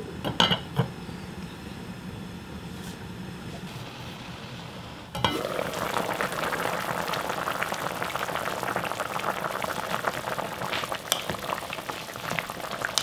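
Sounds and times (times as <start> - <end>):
stew bubbling and popping: 5.1 - 13.0.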